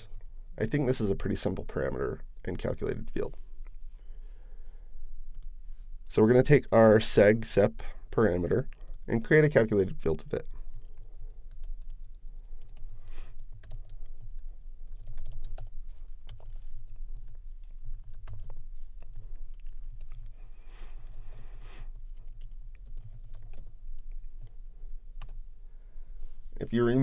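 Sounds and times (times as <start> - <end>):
low steady hum: 0.0 - 27.0
typing on computer keyboard: 10.8 - 24.5.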